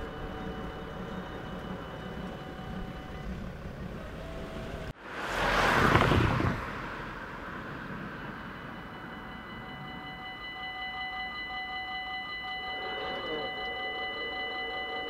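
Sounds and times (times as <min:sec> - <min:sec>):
level crossing bell ringing: 0:00.0 - 0:04.5, 0:07.8 - 0:15.0
car passing close by: 0:01.4 - 0:10.0.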